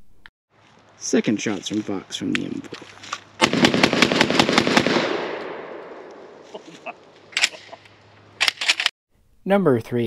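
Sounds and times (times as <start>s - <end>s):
shotgun shots: 3.4s - 6.4s.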